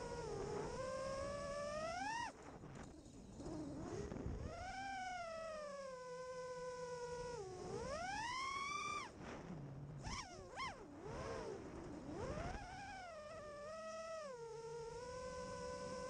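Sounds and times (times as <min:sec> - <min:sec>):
quadcopter propellers whining: 0:03.3 - 0:09.4, 0:10.0 - 0:16.0.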